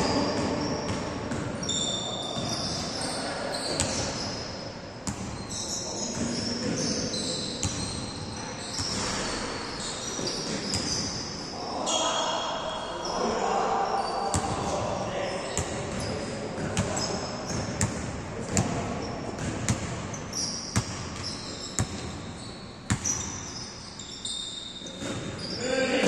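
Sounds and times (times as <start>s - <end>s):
sneakers squeaking on court: 0.0s - 25.7s
basketball bouncing: 5.0s - 5.4s, 15.6s - 18.8s, 19.4s - 22.3s, 22.9s - 23.4s.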